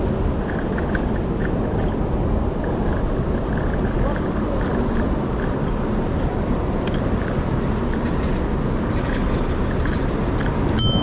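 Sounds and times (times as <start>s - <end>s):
city traffic noise: 0.0s - 11.0s
short high ring: 10.8s - 11.0s.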